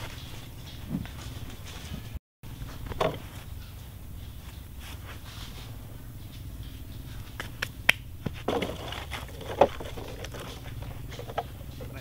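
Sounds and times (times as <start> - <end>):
hand scraping sand: 3.2 - 6.1.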